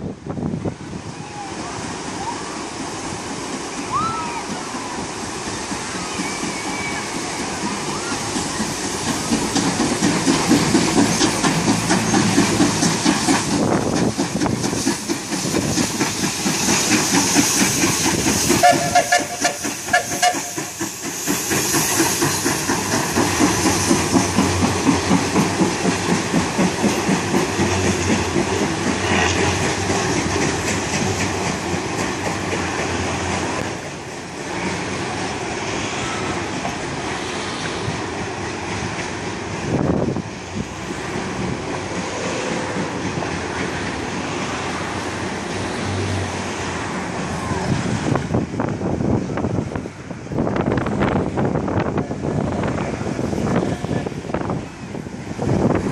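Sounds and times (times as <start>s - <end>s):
hissing steam: 0.1s - 55.9s
steam locomotive chuffing: 0.1s - 55.9s
wheels clicking over rail joints: 2.8s - 35.4s
steam whistle blast: 18.6s - 20.7s.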